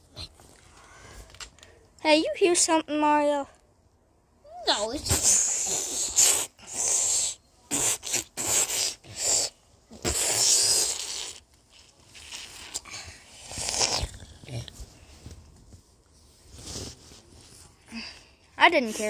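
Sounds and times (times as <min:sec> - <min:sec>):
person making hissing growls: 0:05.0 - 0:11.4.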